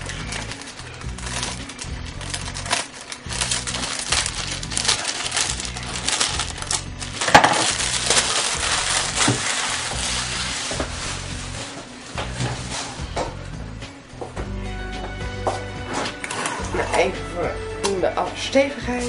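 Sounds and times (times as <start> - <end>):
plastic sheet crinkling: 0.0 - 13.0
background music: 0.0 - 19.0.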